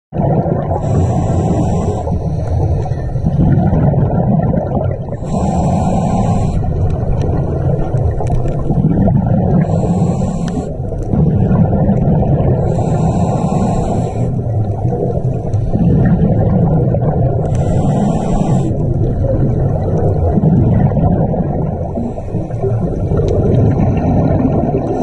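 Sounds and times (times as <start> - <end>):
exhaled bubbles rumbling: 0.1 - 25.0
regulator hissing inhalations: 0.8 - 3.0, 5.2 - 6.8, 9.6 - 10.8, 12.6 - 14.4, 17.4 - 18.9.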